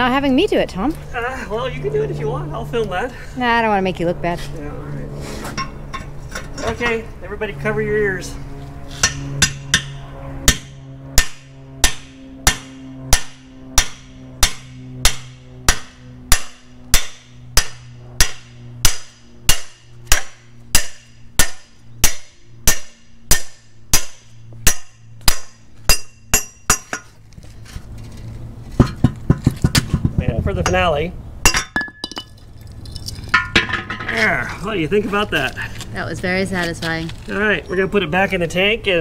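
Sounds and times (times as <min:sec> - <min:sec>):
hammer striking metal drift: 0:08.9 - 0:27.1.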